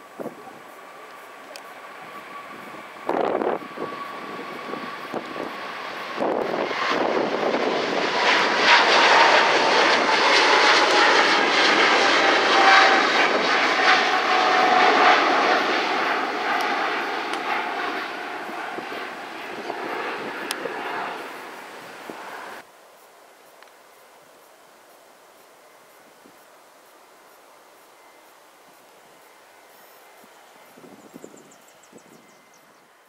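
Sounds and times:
jet engine roar: 0:00.0 - 0:22.6
whine falling in pitch: 0:08.2 - 0:21.2.

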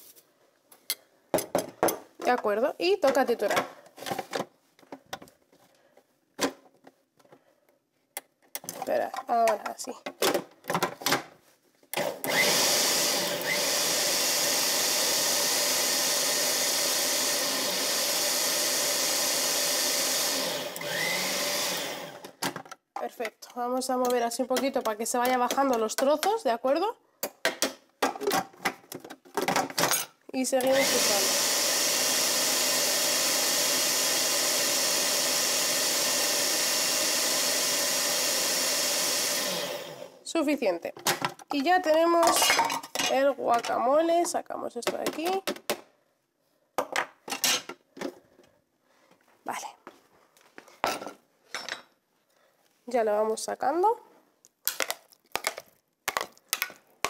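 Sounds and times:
food processor motor running: 0:12.0 - 0:22.3, 0:30.6 - 0:40.2.

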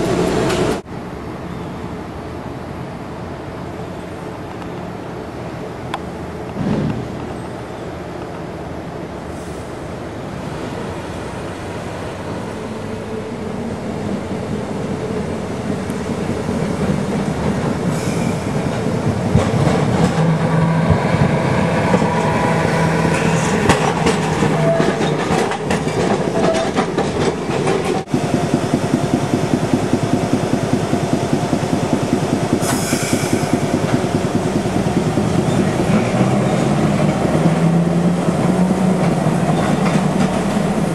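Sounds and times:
streetcar wheels clicking over rails: 0:15.1 - 0:40.9.

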